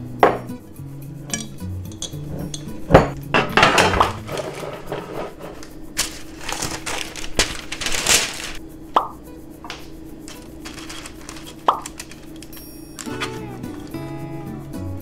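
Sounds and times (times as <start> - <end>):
parchment paper crinkling: 3.8 - 8.6, 9.7 - 14.0.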